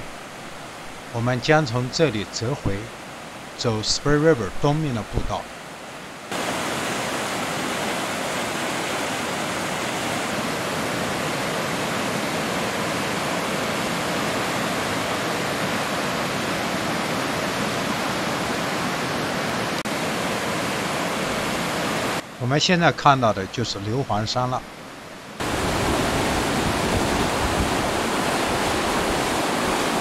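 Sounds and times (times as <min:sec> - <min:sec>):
rapids rushing over rocks: 0:06.3 - 0:22.2, 0:25.4 - 0:30.0.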